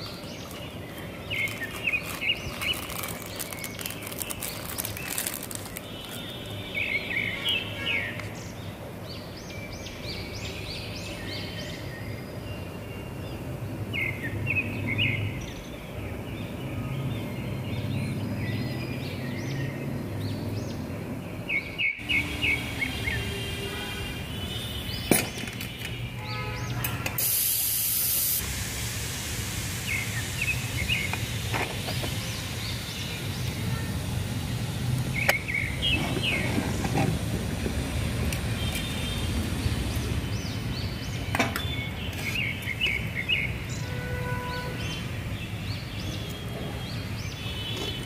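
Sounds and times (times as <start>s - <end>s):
small birds chirping: 0.0s - 13.1s, 29.8s - 36.7s
short high hiss: 27.2s - 34.7s.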